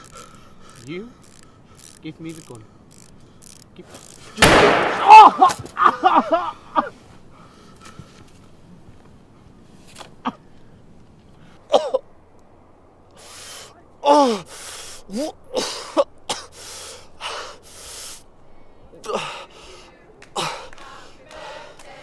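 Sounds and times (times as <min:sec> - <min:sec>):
quick heavy breaths: 0:00.0 - 0:03.7, 0:07.0 - 0:08.6, 0:13.1 - 0:22.0
man gasping and groaning: 0:14.0 - 0:16.0, 0:19.0 - 0:19.5.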